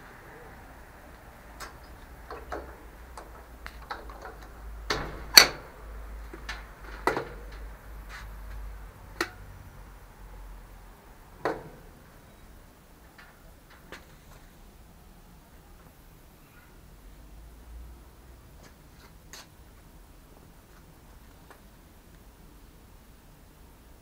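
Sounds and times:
equipment clicking and knocking: 1.6 - 7.7.

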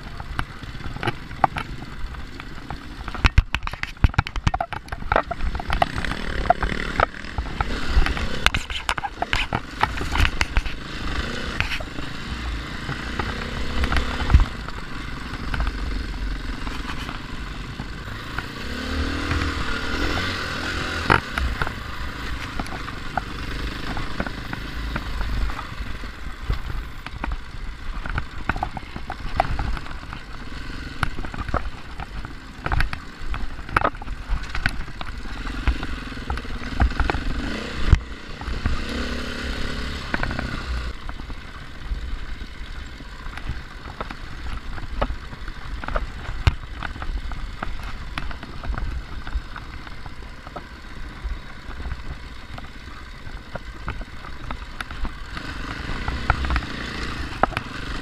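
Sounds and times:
stones and chassis rattling: 0.0 - 58.0
dirt bike engine revving: 5.3 - 33.3, 34.8 - 41.0, 54.6 - 58.0.

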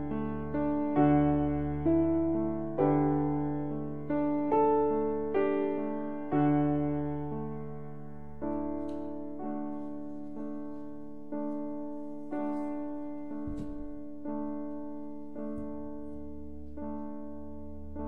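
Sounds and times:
soft piano chords: 0.0 - 18.0
dull low thuds: 13.2 - 14.2.

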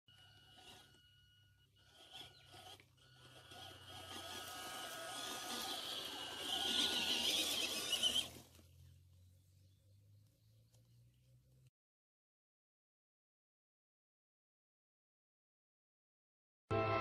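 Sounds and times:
electric motor whine: 0.1 - 8.6
toy truck brushing through weeds: 0.1 - 8.8.

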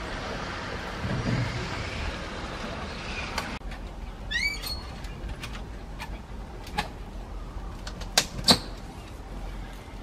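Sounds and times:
monkey squeak: 4.3 - 4.9.

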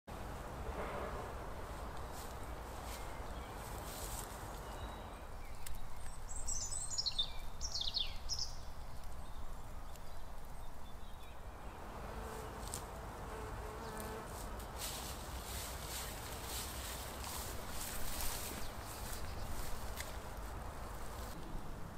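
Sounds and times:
steps rustling through tall grass: 1.7 - 4.9, 14.2 - 21.4.

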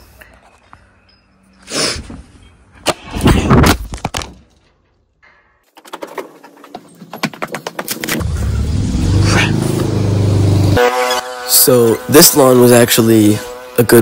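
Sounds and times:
objects knocking and scraping: 2.1 - 8.2.

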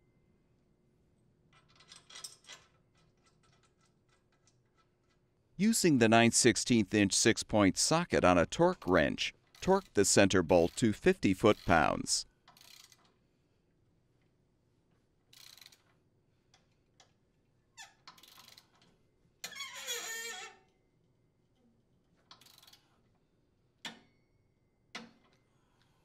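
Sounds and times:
torque wrench ratcheting: 12.5 - 13.1, 18.1 - 18.8.

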